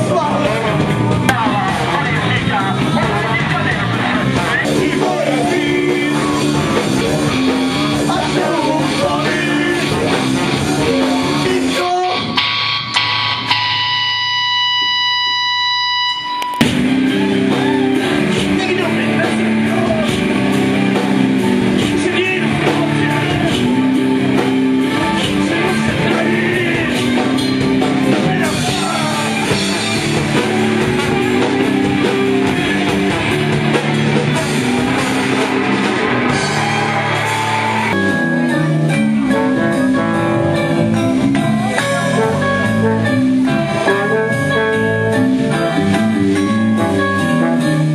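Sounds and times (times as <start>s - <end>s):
live rock band playing: 0.0s - 47.9s
steady held tone: 12.4s - 16.7s.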